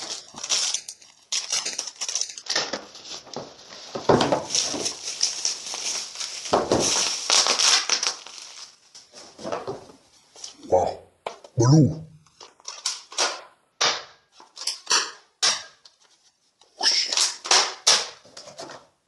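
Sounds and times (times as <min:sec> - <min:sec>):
bubble wrap crinkling: 0:00.0 - 0:10.6, 0:12.3 - 0:13.2.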